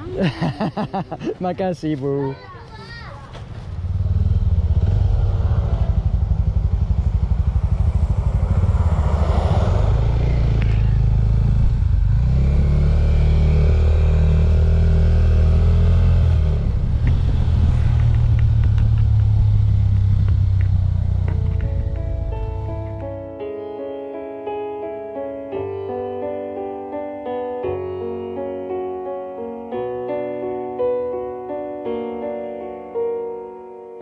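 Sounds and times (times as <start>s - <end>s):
motorcycle engine pulling away: 3.3s - 23.3s.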